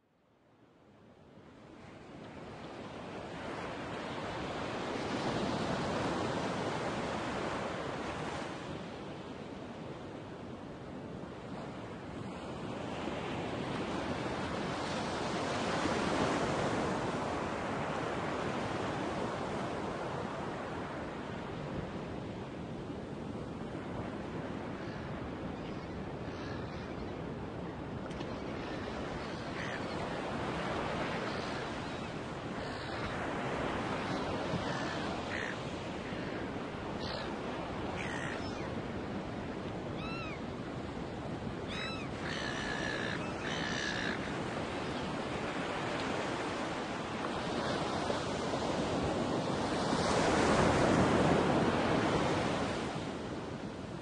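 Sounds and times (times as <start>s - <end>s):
ocean surf: 28.4s - 54.0s
seagull calls: 34.5s - 35.7s, 37.9s - 38.7s, 40.0s - 40.4s, 41.7s - 44.4s.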